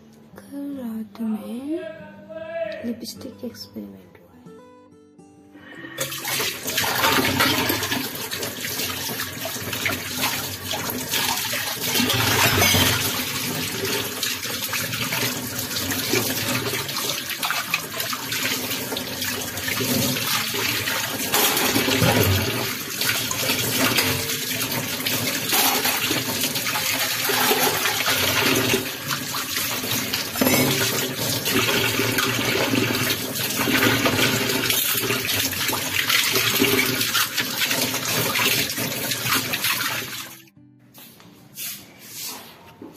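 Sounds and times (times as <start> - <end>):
dishes being scrubbed: 6.0 - 40.2
tap water running into sink: 6.0 - 40.4.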